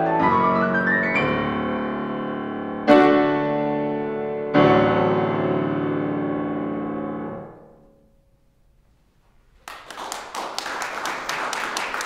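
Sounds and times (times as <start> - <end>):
audience applauding: 9.6 - 12.0.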